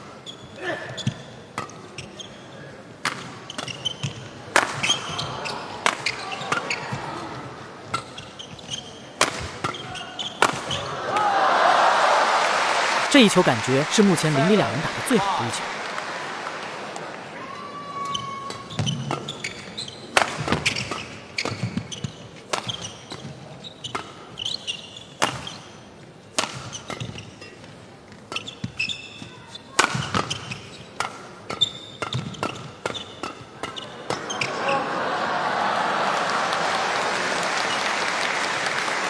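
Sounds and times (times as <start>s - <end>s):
shoes squeaking on court: 0.1s - 2.6s, 3.3s - 7.1s, 7.9s - 10.9s, 17.6s - 25.8s, 26.6s - 34.6s
racket striking shuttlecock: 4.5s - 5.1s, 9.2s - 10.7s, 20.2s - 21.8s, 25.2s - 25.5s, 26.3s - 27.2s, 29.8s - 34.2s
crowd applauding: 11.2s - 17.4s, 34.8s - 39.0s.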